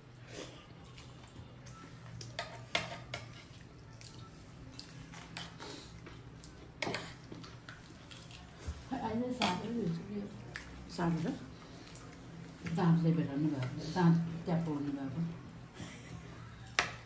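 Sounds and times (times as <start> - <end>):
soft chewing: 0.2 - 9.0, 9.9 - 12.8
cutlery clinking on a plate: 2.4 - 3.5.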